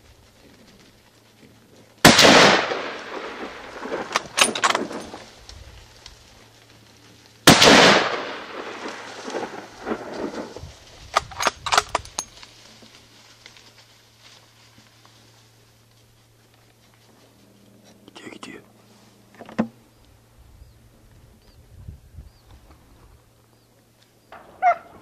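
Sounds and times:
gunshots with long echo: 2.0s - 5.2s, 7.4s - 10.6s
sharp clicks and knocks: 11.1s - 12.3s.

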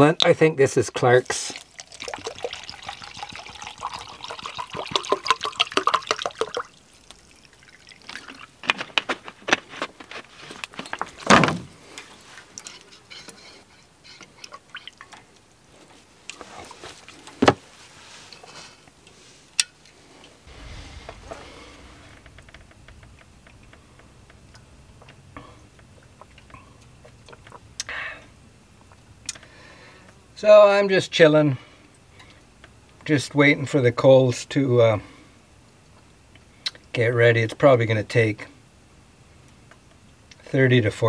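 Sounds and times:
water glugging into metal mug: 1.6s - 8.5s.

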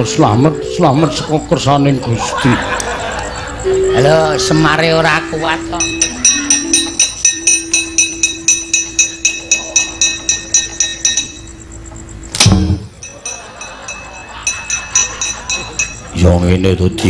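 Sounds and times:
steady low tone: 2.8s - 17.0s
loud metal hit: 12.4s - 13.1s
metal plates clanking: 12.4s - 16.4s.

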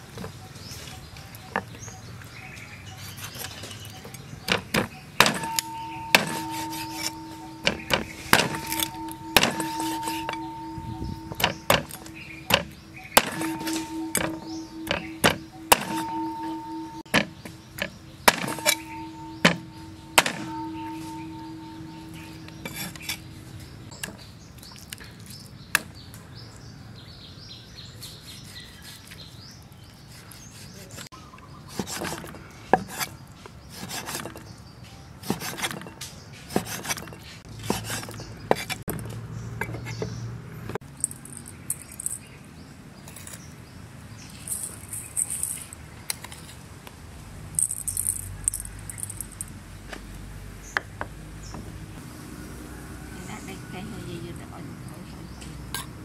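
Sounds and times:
cleaver chopping on wooden block: 4.5s - 21.3s.

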